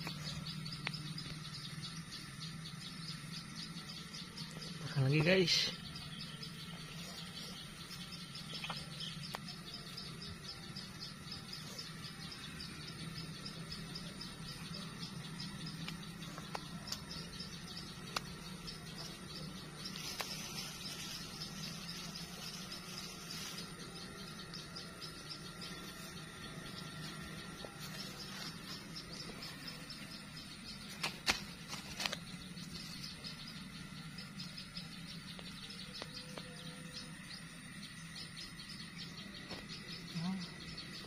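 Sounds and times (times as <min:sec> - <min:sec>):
insects chirping: 0:00.0 - 0:41.0
low steady hum: 0:00.0 - 0:41.0
sharp clicks: 0:18.0 - 0:18.4.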